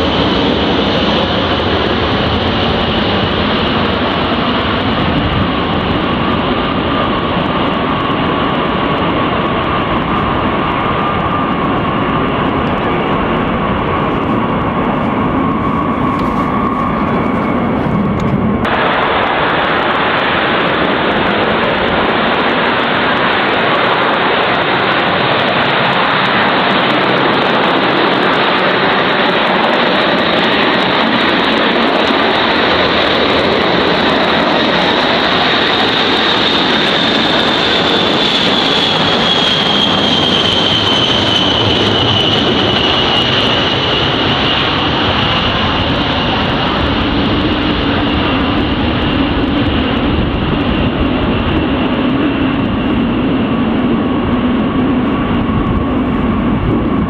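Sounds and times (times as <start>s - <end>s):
high jet engine whine: 0.0s - 57.0s
jet bomber taking off: 0.0s - 57.0s
jet rolling on runway: 0.0s - 57.0s.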